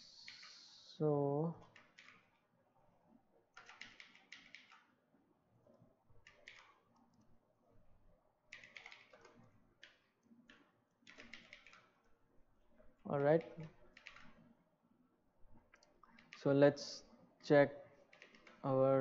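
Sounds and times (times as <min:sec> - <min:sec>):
faint keyboard typing: 0:00.0 - 0:02.5, 0:03.5 - 0:05.0, 0:05.7 - 0:07.4, 0:08.5 - 0:14.6, 0:15.6 - 0:17.2, 0:17.9 - 0:19.0.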